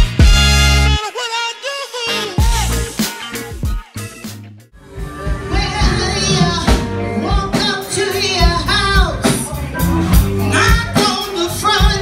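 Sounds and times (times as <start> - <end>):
drum beat: 0.0 - 0.8, 2.4 - 4.3
person singing: 1.0 - 4.2, 4.8 - 12.0
electric guitar: 2.0 - 12.0.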